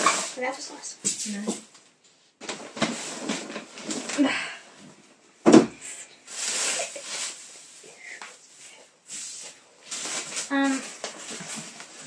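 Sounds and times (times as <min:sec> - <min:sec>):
shredded paper rustling: 0:06.3 - 0:12.0.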